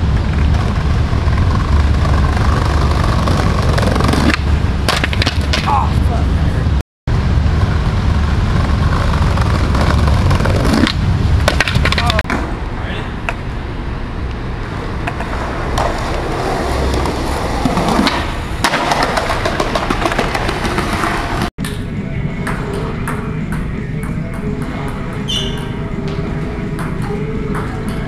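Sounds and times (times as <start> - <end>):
skateboard wheels rolling on pavement: 0.0 - 21.5
skateboard clacking: 0.4 - 5.9, 8.6 - 12.4, 15.0 - 21.5.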